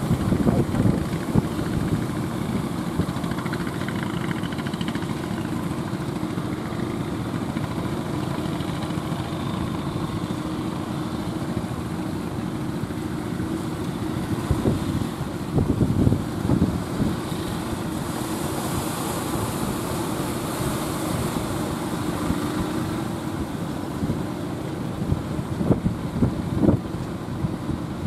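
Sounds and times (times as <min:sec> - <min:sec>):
boat engine running: 0:00.0 - 0:28.0.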